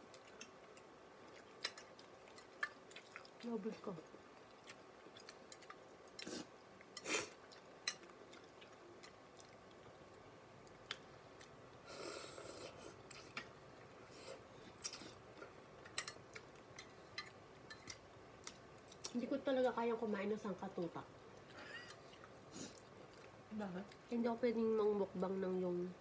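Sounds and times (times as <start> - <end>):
person chewing and slurping: 0.1 - 3.4, 4.4 - 10.0.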